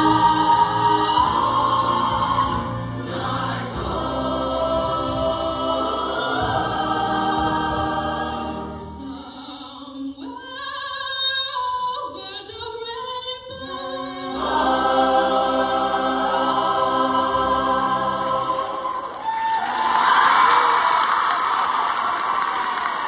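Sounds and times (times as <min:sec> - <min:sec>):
choir singing in harmony: 0:00.0 - 0:11.1, 0:13.5 - 0:20.2.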